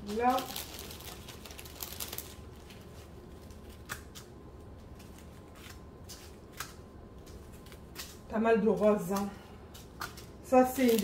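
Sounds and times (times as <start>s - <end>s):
plastic bags crinkling: 0.0s - 3.9s, 9.8s - 11.0s.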